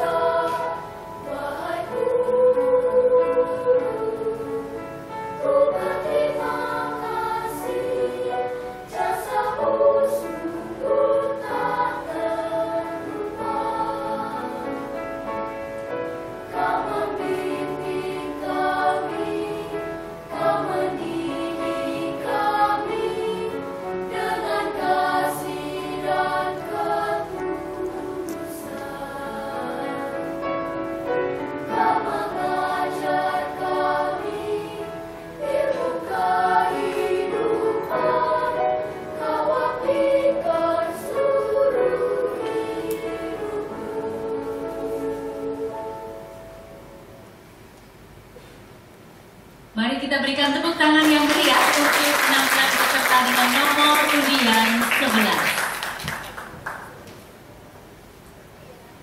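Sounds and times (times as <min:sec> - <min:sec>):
children's choir singing: 0:00.0 - 0:46.6.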